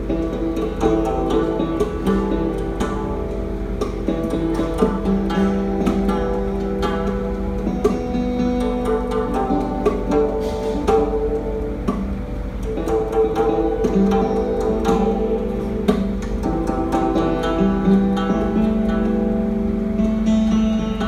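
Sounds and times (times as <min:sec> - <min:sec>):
bowed string held notes: 0:00.0 - 0:21.0
hammered dulcimer notes: 0:00.0 - 0:21.0
plucked zither notes: 0:00.0 - 0:21.0.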